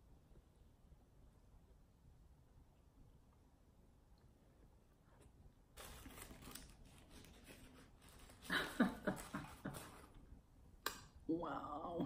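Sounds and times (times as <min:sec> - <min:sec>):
paper wrapper crinkling: 0:05.8 - 0:10.2.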